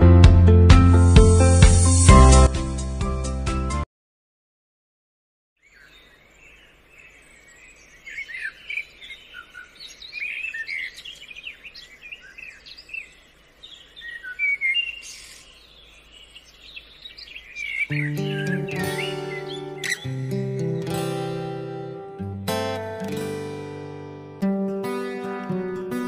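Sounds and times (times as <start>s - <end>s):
birds chirping: 5.6s - 23.4s
faint outdoor hiss: 5.6s - 26.0s.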